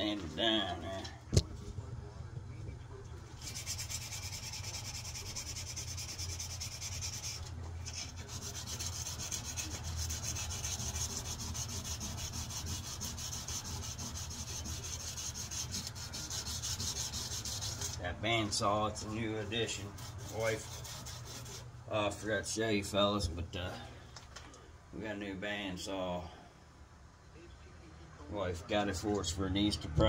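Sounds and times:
steady low hum: 0.0 - 30.0
sandpaper rubbing on a blade: 3.4 - 18.0, 19.7 - 21.7.

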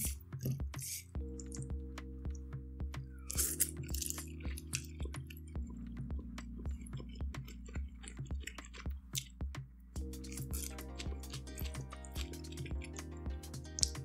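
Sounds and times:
soft background music: 0.0 - 14.0
person chewing noodles: 3.3 - 9.3, 10.1 - 13.2.

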